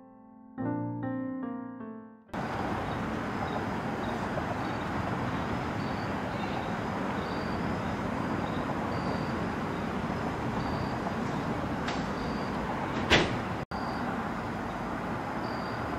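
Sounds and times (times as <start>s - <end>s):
outdoor background rush: 2.4s - 15.9s
faint high chirps: 8.4s - 9.4s, 10.6s - 11.0s.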